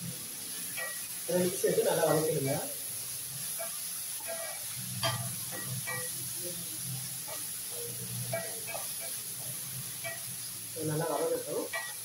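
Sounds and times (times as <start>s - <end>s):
onions sizzling in oil: 0.0s - 12.0s
spatula scraping a pan: 0.6s - 1.1s, 3.3s - 12.0s.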